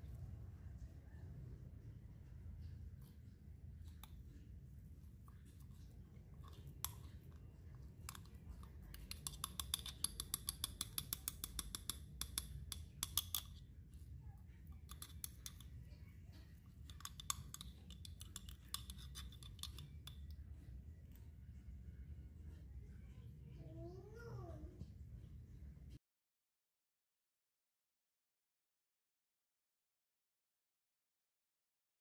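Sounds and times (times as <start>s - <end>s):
spoon clicking against glass jar: 8.0s - 13.6s, 14.8s - 15.8s, 16.8s - 20.4s.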